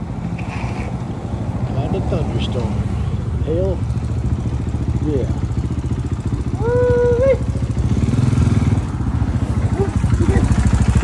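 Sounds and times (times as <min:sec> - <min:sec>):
dirt bike engines idling: 0:00.0 - 0:11.0
person calling out: 0:06.5 - 0:07.6.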